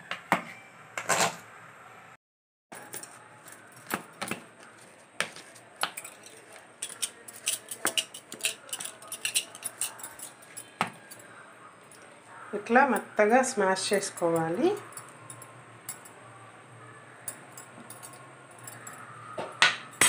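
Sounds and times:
ladle mashing potatoes in steel bowl: 3.8 - 11.2.

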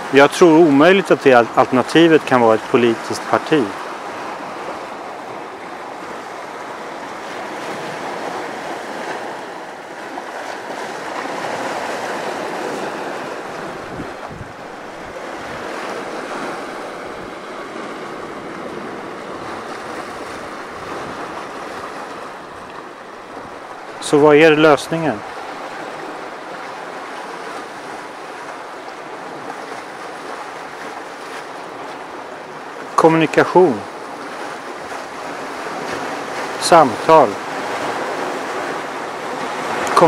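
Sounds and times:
waves washing onto rocks: 0.0 - 40.0
wind buffeting microphone: 10.6 - 24.1.

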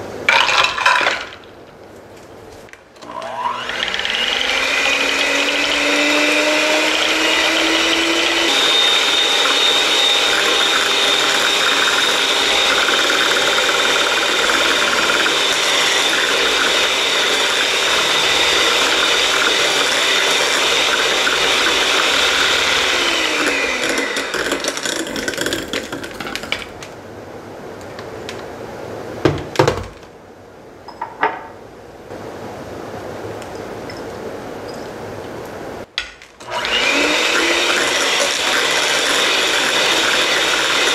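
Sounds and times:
electric hand mixer whining: 3.0 - 26.6, 36.4 - 40.9.

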